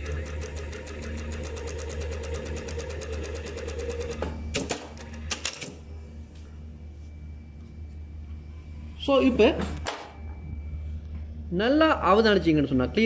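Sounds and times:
sewing machine stitching: 0:00.0 - 0:05.7.

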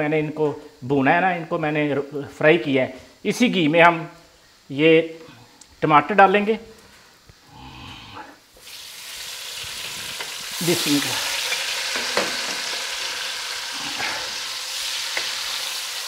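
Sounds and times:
tomatoes sizzling in hot oil: 0:08.4 - 0:16.0.

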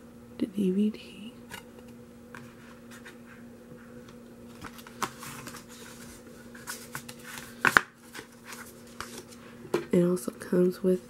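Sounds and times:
steady low hum: 0:00.0 - 0:11.0
paper sleeve rustling: 0:04.5 - 0:09.4.

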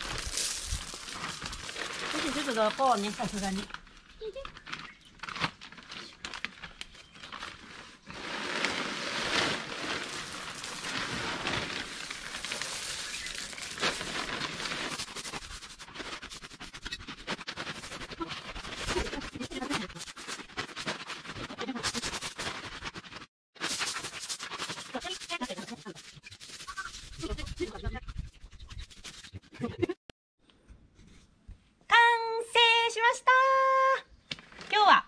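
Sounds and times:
plastic bags crinkling: 0:00.0 - 0:15.7
gravel rattling and crunching: 0:00.0 - 0:25.6.

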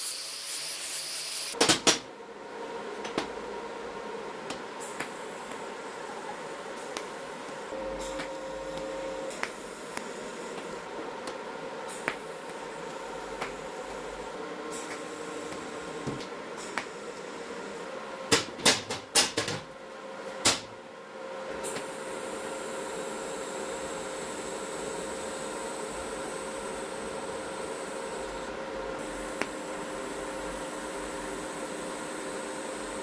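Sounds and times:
faint hum: 0:02.1 - 0:18.4.

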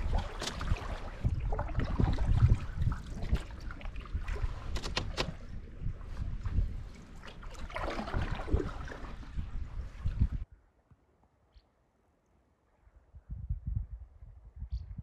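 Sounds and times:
small sharp splashes: 0:00.0 - 0:05.6, 0:06.9 - 0:09.4
water lapping against canoe hull: 0:00.0 - 0:10.4
wind rumbling on microphone: 0:00.0 - 0:10.6, 0:12.8 - 0:15.0.

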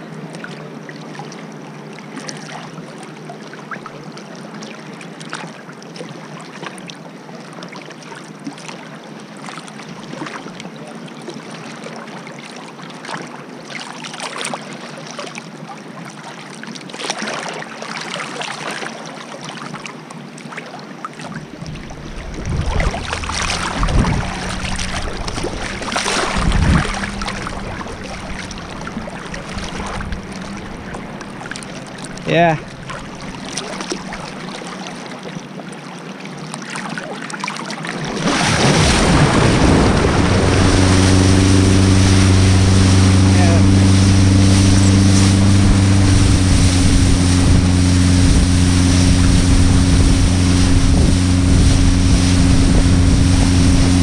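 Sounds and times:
water rushing and splashing: 0:00.0 - 0:54.0
water sloshing and lapping: 0:00.0 - 0:54.0
boat engine humming: 0:20.9 - 0:36.2, 0:37.7 - 0:54.0.

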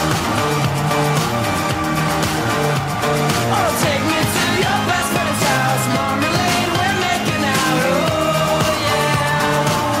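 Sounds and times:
pop music with singer: 0:00.0 - 0:10.0.

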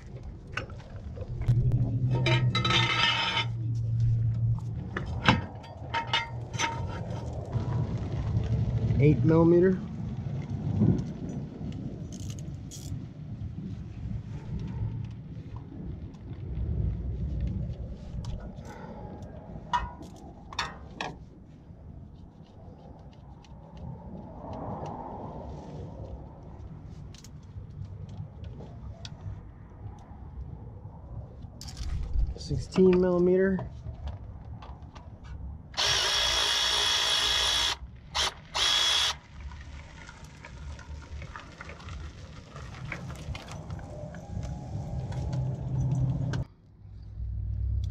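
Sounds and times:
low rumble: 0:00.0 - 0:36.0, 0:39.3 - 0:47.9
electric ratchet whirring: 0:35.8 - 0:39.2.

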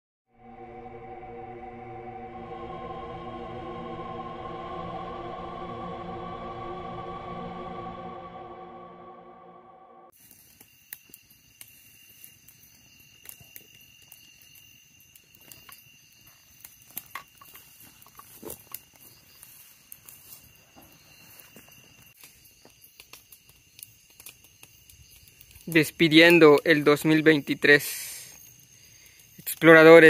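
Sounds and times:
intro music: 0:00.3 - 0:10.1
night insects droning: 0:00.3 - 0:30.0
campfire crackling and popping: 0:10.2 - 0:20.8, 0:22.0 - 0:30.0.

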